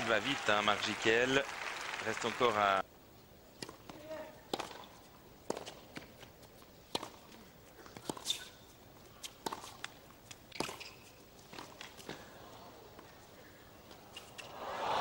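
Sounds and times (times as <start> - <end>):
ball bouncing on court: 3.6 - 4.9
racket striking ball: 3.6 - 4.9
shoe squeak: 8.0 - 8.7, 10.5 - 11.2.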